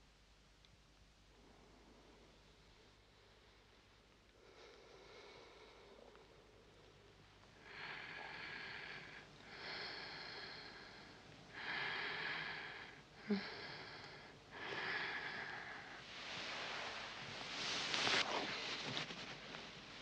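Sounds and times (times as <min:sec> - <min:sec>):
woman rasping breathing: 0:07.6 - 0:16.0.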